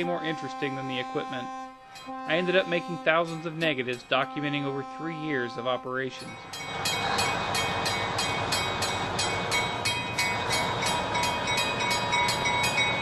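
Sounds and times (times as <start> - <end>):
bell ringing: 0.0 - 13.0
train rumble: 0.0 - 13.0.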